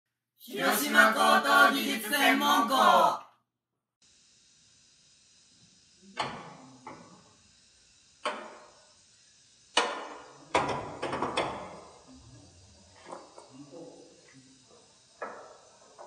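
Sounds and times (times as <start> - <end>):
knocks and clanks on car body: 9.8 - 11.8.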